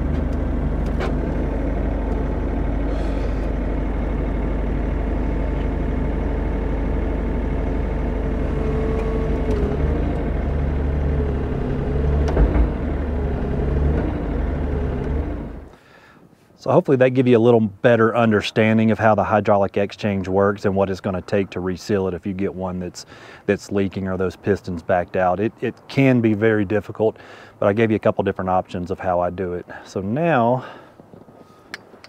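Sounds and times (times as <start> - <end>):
excavator diesel engine running: 0.0 - 15.9.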